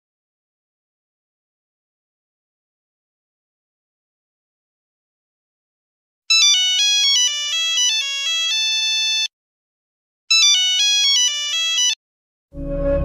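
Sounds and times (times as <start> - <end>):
mobile phone ringtone melody: 6.3 - 9.3, 10.3 - 12.0.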